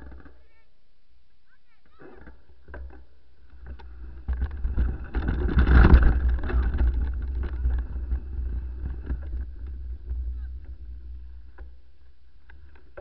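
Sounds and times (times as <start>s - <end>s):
mountain bike rattling: 3.4s - 13.0s
wind on microphone: 3.7s - 11.7s.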